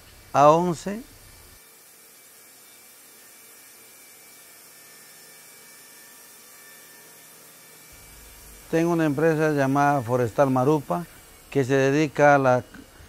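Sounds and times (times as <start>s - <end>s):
thin high tones: 7.9s - 13.0s.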